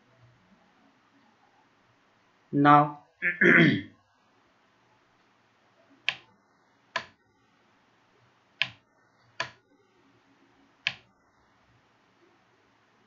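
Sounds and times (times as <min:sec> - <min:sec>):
computer mouse clicks: 0:06.0 - 0:06.3, 0:07.0 - 0:07.2, 0:08.6 - 0:09.6, 0:10.8 - 0:11.1.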